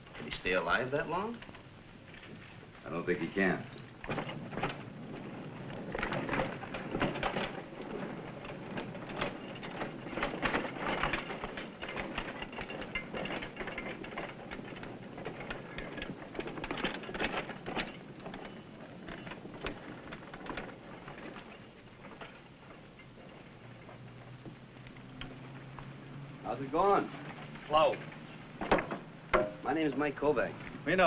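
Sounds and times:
rock and rubble clattering: 0.0s - 25.9s, 26.5s - 31.0s.

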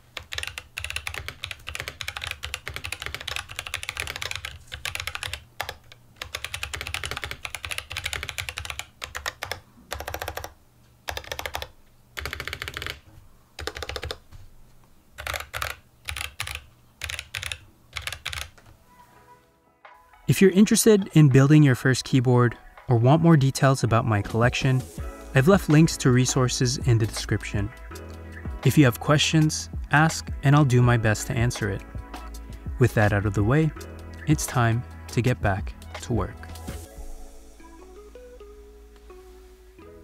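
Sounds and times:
mechanical keyboard typing: 0.2s - 13.0s, 13.6s - 14.2s, 15.2s - 18.6s.

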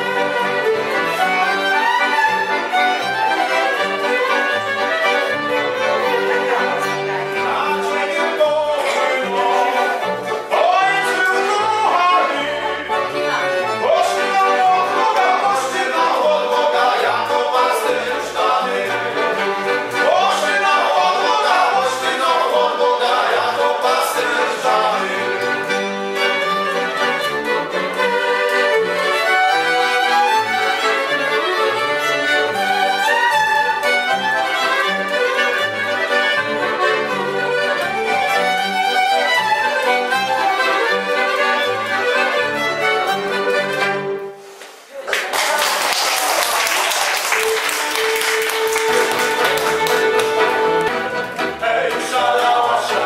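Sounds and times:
folk band playing lively tune: 0.0s - 44.7s, 46.8s - 53.0s
applause: 45.0s - 50.4s.

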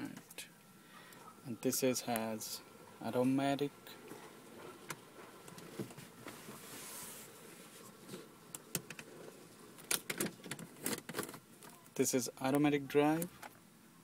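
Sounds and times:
gear lever clicks and clunks: 9.8s - 11.8s.

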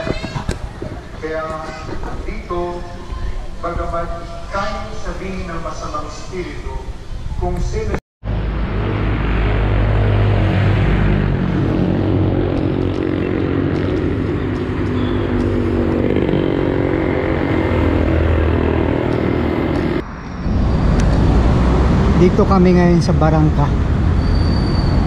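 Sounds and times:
road traffic engines: 0.0s - 25.0s
motorcycle passing: 8.3s - 24.2s.

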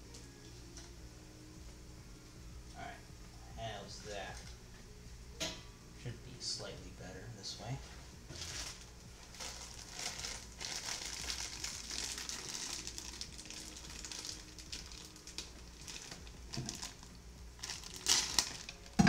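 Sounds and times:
plastic packaging crinkling: 8.3s - 19.0s.

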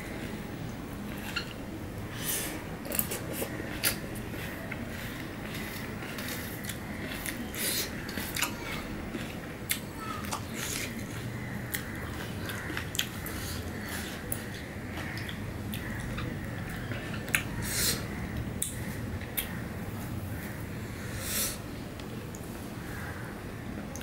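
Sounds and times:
fingers mixing juicy fruit: 2.8s - 19.6s.

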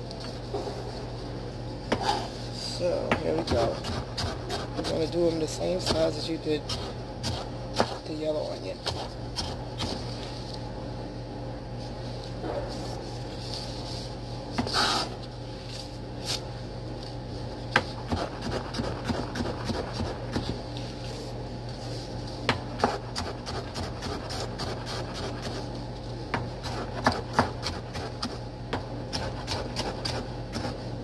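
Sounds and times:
steady low hum: 0.0s - 31.0s
knife scrape: 1.9s - 2.4s, 14.6s - 16.5s, 22.8s - 25.7s.

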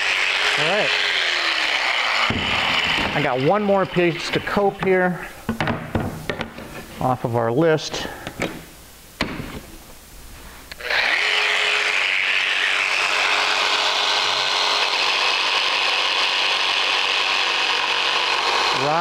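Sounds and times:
jigsaw cutting wood: 0.0s - 4.3s, 10.8s - 19.0s.

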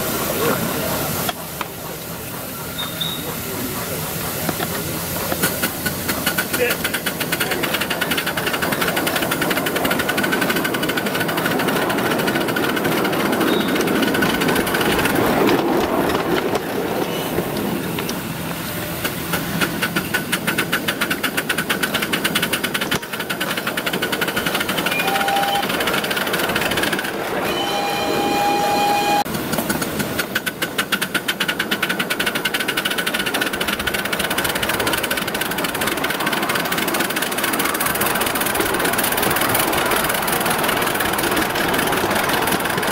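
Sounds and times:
steam locomotive chuffing: 0.0s - 42.9s
steady pitched whistle tone: 2.7s - 3.3s, 24.9s - 25.8s, 27.4s - 29.3s.

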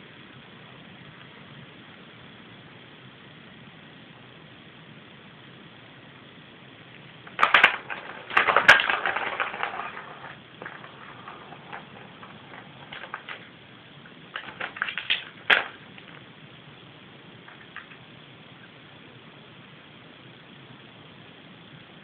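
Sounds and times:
plastic ball rattling in a track: 7.2s - 16.6s, 17.2s - 18.2s.

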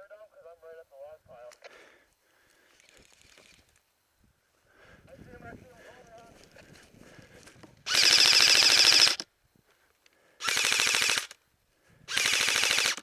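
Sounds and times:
airsoft rifle full-auto fire: 7.9s - 9.3s, 10.4s - 11.4s, 12.1s - 13.0s.

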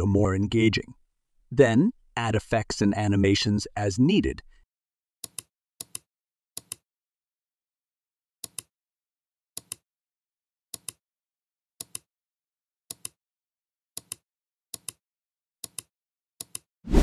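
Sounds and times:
computer mouse clicking: 5.2s - 6.8s, 8.4s - 8.7s, 9.6s - 9.8s, 10.8s - 11.0s, 11.8s - 12.1s, 12.9s - 13.2s, 14.0s - 14.2s, 14.8s - 15.0s, 15.6s - 16.7s.

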